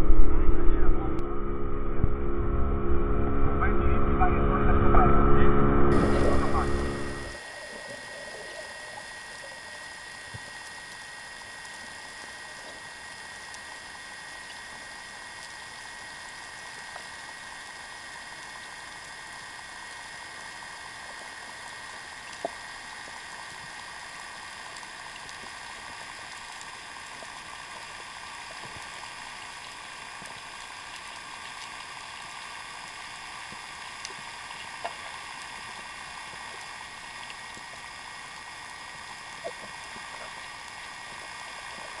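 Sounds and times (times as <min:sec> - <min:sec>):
thin steady tone: 0:00.0 - 0:31.2
muffled underwater sea hiss: 0:06.0 - 0:42.0
faint clicks: 0:19.8 - 0:42.0.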